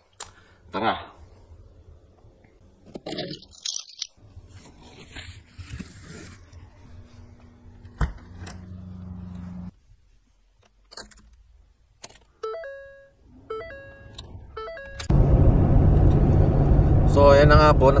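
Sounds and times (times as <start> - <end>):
car engine and road rumble: 4.2 - 9.8, 13.7 - 18.0
electronic chime tones: 12.4 - 15.1.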